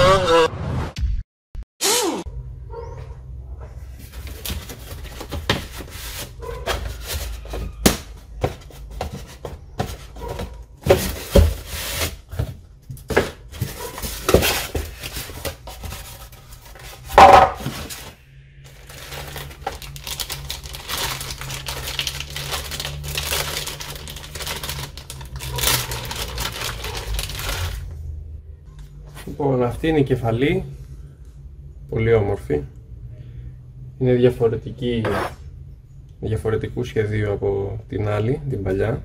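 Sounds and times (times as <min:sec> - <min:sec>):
cardboard box handled: 0:04.0 - 0:18.1
plastic bags crinkling: 0:13.4 - 0:27.9.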